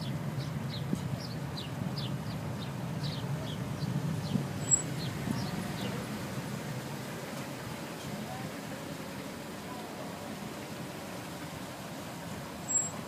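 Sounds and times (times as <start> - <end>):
bird chirping: 0.0 - 6.0, 12.7 - 13.0
car engines idling: 0.0 - 13.0.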